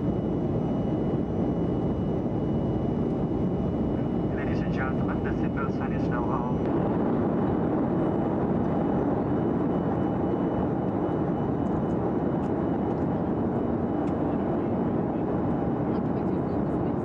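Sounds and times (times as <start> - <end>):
faint high whine: 0.0 - 15.8
jet engines roaring in cabin: 0.0 - 17.0.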